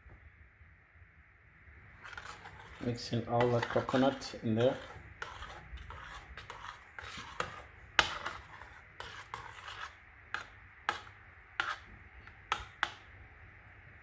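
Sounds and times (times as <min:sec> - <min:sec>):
metal spoon stirring in pot: 0:01.9 - 0:13.1.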